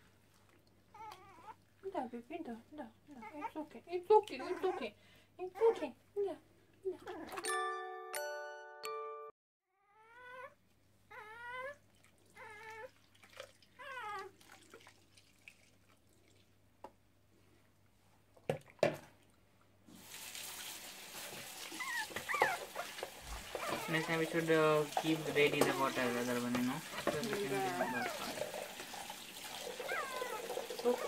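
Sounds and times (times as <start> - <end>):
puppy whimpering: 0.9 - 1.6, 4.3 - 4.9, 9.9 - 11.8, 12.4 - 12.9, 13.8 - 14.3, 21.7 - 26.0, 27.2 - 28.4, 29.7 - 31.0
water splashing in tub: 12.0 - 16.6, 19.9 - 31.0.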